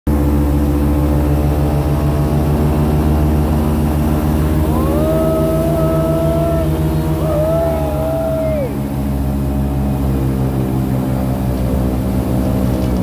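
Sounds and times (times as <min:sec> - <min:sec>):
high whine: 0:00.1 - 0:10.4
airboat engine and propeller: 0:00.1 - 0:13.0.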